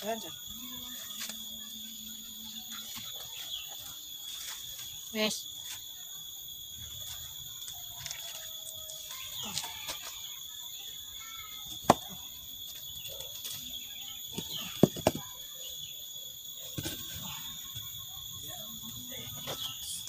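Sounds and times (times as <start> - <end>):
stones knocking: 11.8 - 12.2, 14.4 - 15.3, 16.7 - 17.2.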